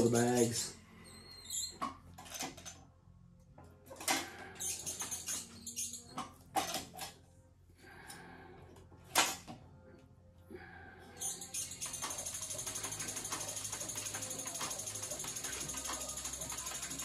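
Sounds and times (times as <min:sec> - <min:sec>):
leather stitching machine ticking: 0:11.6 - 0:17.0.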